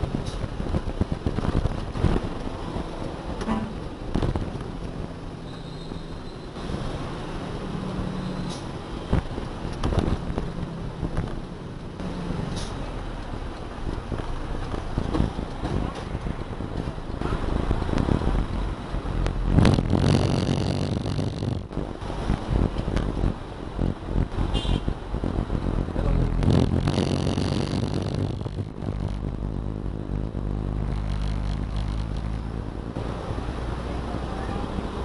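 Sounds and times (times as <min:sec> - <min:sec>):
truck diesel engine running: 0:25.4 - 0:35.0.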